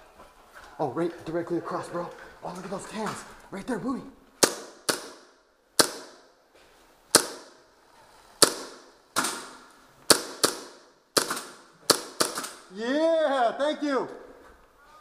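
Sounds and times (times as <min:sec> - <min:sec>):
airsoft gun shots: 0:04.4 - 0:06.3, 0:07.1 - 0:07.7, 0:08.4 - 0:12.7.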